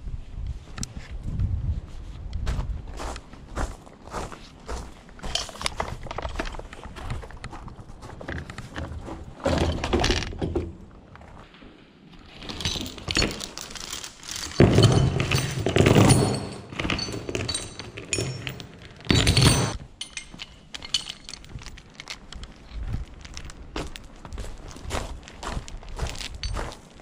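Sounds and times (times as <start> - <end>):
heavy chain rattling and clanking: 12.2 - 22.3, 26.1 - 26.8.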